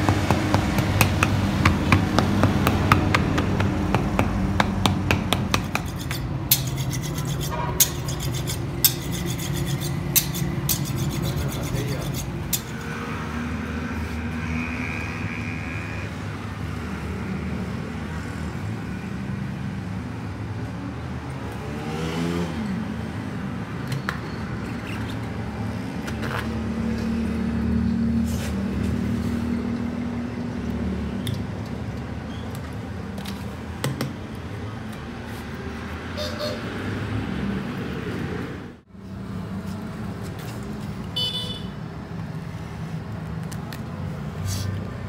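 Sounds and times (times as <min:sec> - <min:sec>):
vehicle engines running: 0:00.0 - 0:06.6, 0:20.0 - 0:45.0
vehicle passing: 0:21.3 - 0:23.7, 0:35.1 - 0:41.0.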